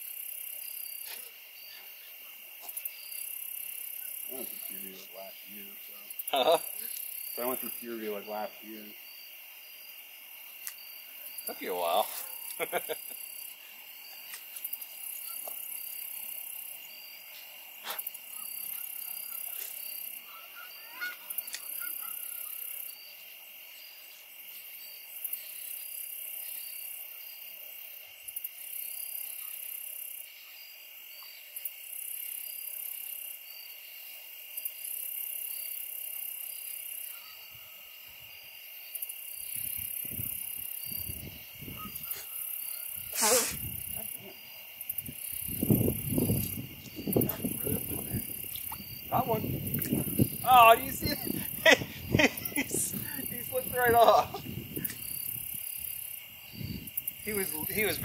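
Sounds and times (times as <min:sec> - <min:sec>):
high insect buzz: 0:00.0 - 0:58.0
insect trilling and chirping: 0:00.0 - 0:58.0.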